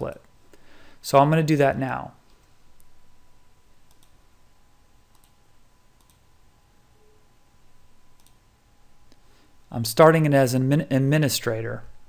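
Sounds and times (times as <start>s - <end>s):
low background hiss: 0.0s - 12.0s
computer mouse clicks: 3.9s - 4.2s, 5.1s - 5.4s, 6.0s - 6.2s, 8.2s - 8.4s.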